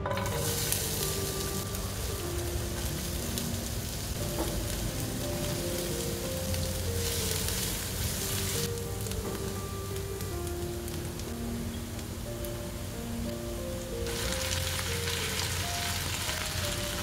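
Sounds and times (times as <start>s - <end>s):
food sizzling in hot oil: 0.0s - 17.0s
soft background music: 0.0s - 17.0s.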